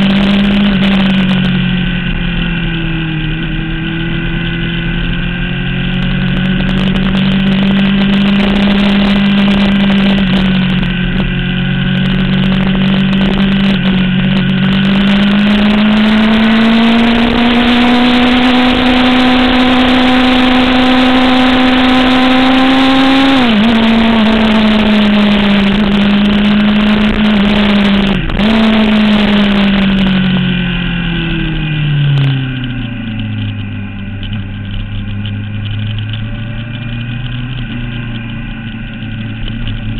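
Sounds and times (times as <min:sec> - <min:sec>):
motorcycle engine at speed: 0:00.0 - 0:39.9
heavy wind rush: 0:23.2 - 0:39.9.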